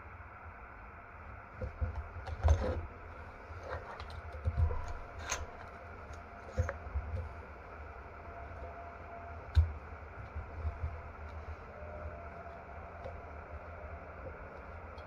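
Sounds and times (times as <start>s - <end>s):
metal parts clicking and clinking: 3.6s - 5.8s.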